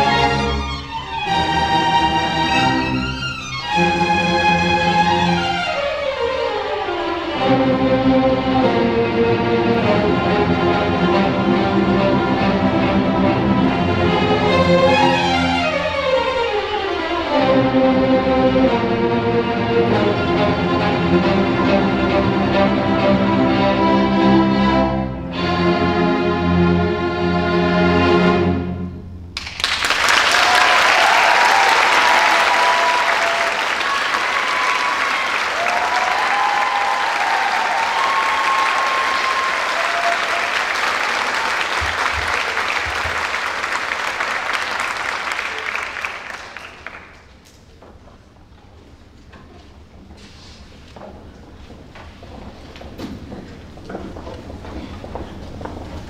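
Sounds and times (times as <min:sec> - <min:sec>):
audience applauding: 0:29.4 - 0:47.7
audience cheering: 0:29.5 - 0:47.2.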